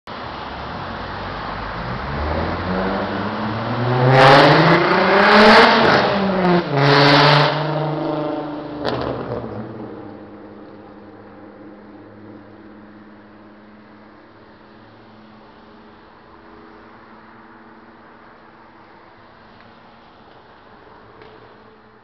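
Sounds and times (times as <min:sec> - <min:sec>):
vehicle engine passing by: 0:00.9 - 0:09.9.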